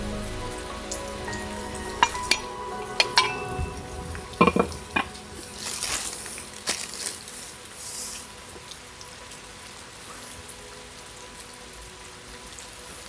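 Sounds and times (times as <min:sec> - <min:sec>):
steady rain: 0:00.0 - 0:13.0
plastic bread bag rustling: 0:05.4 - 0:07.5.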